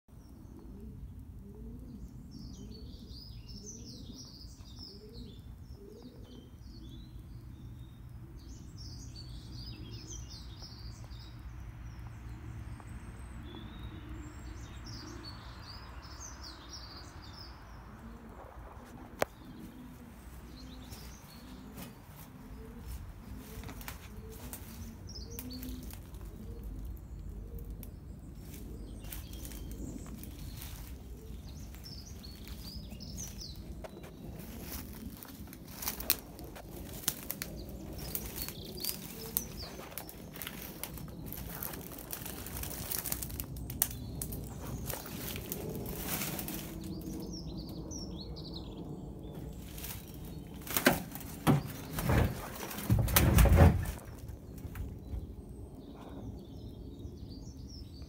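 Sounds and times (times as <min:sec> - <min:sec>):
small birds chirping: 0:00.1 - 0:58.0
low cooing: 0:00.6 - 0:04.3, 0:17.9 - 0:27.8
steady low rumble: 0:06.5 - 0:52.0
soft knocks and rustles: 0:50.6 - 0:54.9.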